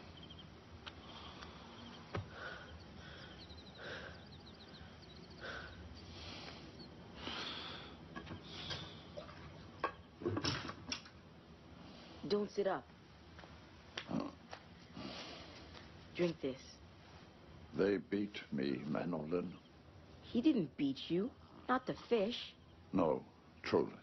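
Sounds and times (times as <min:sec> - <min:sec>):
faint high chirps: 0:00.0 - 0:07.0
man breathing slowly: 0:00.9 - 0:09.2.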